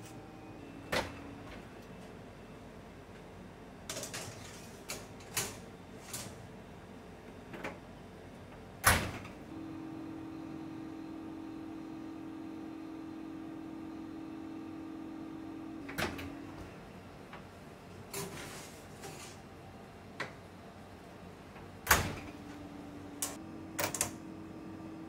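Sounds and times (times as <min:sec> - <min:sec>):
oven fan humming: 0:00.0 - 0:25.0
oven door opening click: 0:21.8 - 0:22.4.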